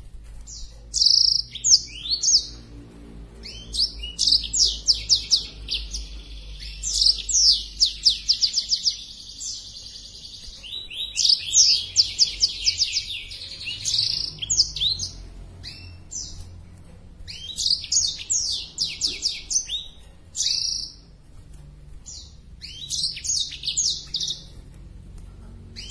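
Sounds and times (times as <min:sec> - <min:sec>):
bird singing trills: 0:00.0 - 0:24.8, 0:25.4 - 0:25.9.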